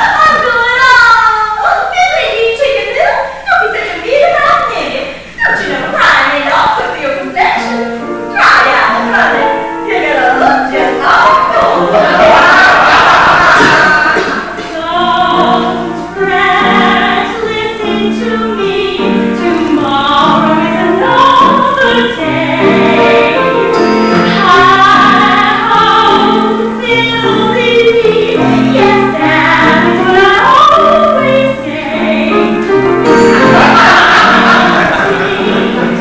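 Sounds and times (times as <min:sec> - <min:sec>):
voices singing with instruments: 0:08.4 - 0:17.3, 0:27.9 - 0:36.0.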